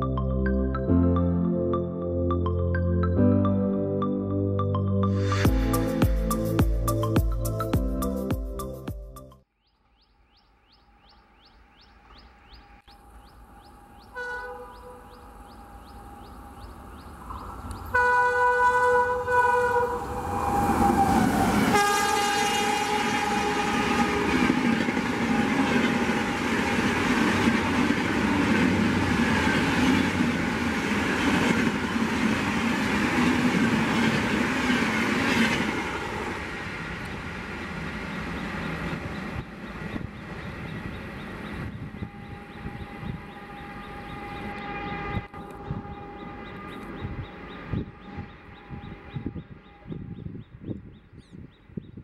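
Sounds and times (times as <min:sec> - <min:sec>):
locomotive horn: 0:14.1 - 0:15.2, 0:17.9 - 0:27.5, 0:42.0 - 0:50.2
train coaches rushing by: 0:16.0 - 0:49.1.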